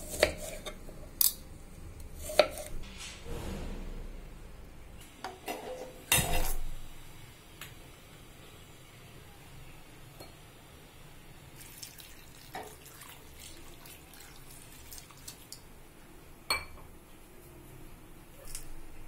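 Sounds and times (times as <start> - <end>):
water pouring into a pot: 11.4 - 15.6.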